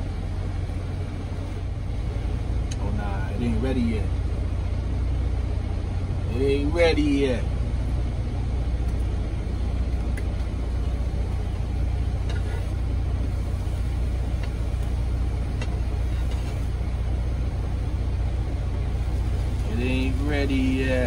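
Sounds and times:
diesel engine idling: 0.0s - 21.0s.

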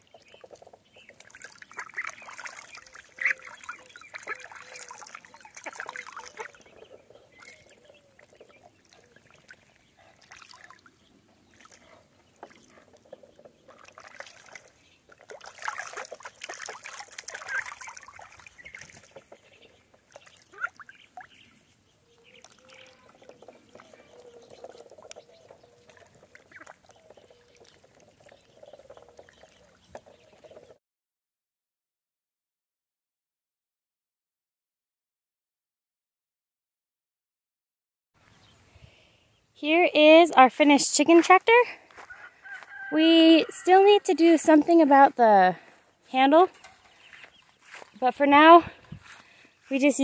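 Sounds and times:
ducks splashing in water: 0.0s - 30.8s, 41.8s - 49.8s.

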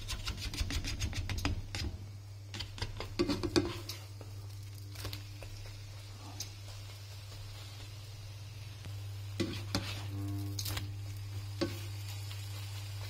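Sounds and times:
steady low hum: 1.3s - 13.0s
spatula scraping a wok: 2.6s - 4.1s, 9.3s - 13.0s.

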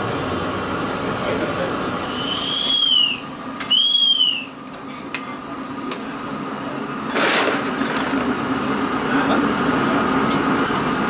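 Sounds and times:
steady hum: 0.0s - 11.0s
short steam hiss: 2.0s - 4.4s.

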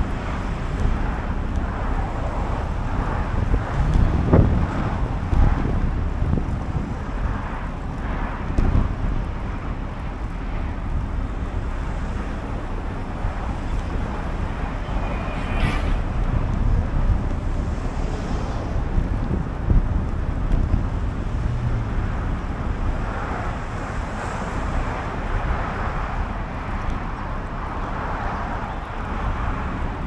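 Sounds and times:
wind rushing over microphone: 0.0s - 30.0s.

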